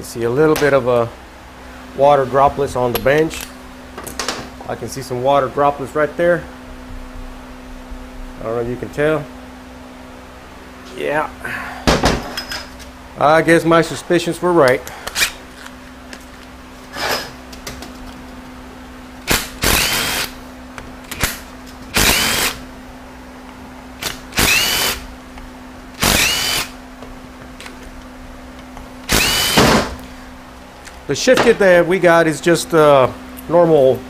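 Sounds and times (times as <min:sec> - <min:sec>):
power drill spinning up: 0:19.2 - 0:20.4, 0:21.9 - 0:22.6, 0:24.0 - 0:25.0, 0:26.0 - 0:26.8, 0:29.0 - 0:29.7.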